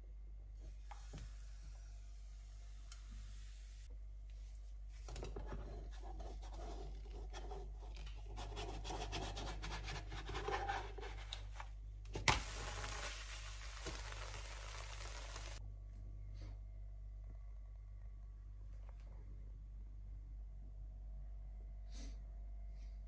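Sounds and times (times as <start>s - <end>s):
steady sizzle: 0.6s - 3.9s, 12.1s - 15.6s
crepe crackling in frying pan: 12.1s - 15.6s.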